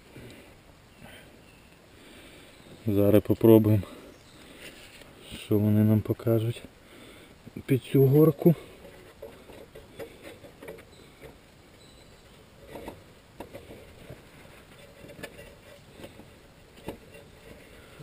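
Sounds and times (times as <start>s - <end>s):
hands handling car wheel: 12.6s - 18.0s.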